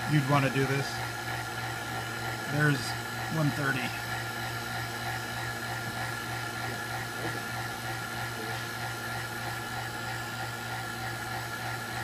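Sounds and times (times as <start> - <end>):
high steady whines: 0.0 - 12.0.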